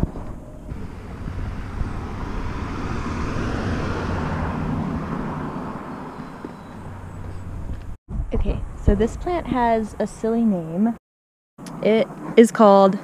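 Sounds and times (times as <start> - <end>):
vehicle passing by: 0.7 - 8.0.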